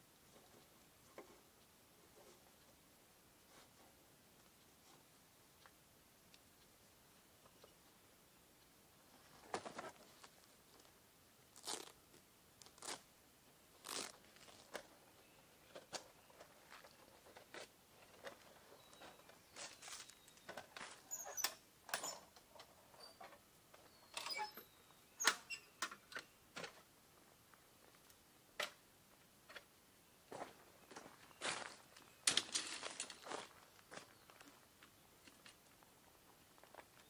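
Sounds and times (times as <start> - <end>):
canvas rustling: 11.5 - 12.0, 12.6 - 13.0, 13.8 - 14.8.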